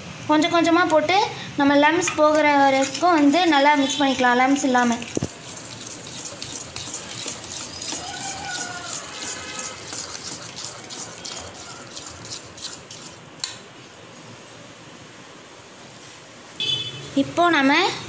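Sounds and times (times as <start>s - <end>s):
spoon scraping metal bowl: 2.0s - 4.2s, 4.8s - 13.3s.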